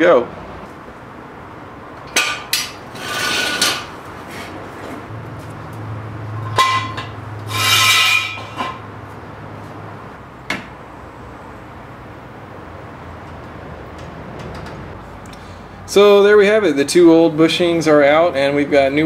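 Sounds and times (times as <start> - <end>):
metal tools clanking: 6.3 - 8.9
ringing metal scrapes: 6.4 - 8.8.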